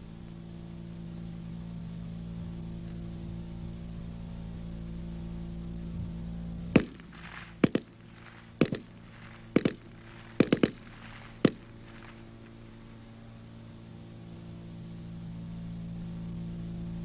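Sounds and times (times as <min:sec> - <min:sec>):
steady low hum: 0:00.0 - 0:17.0
rifle firing bursts: 0:06.8 - 0:12.8.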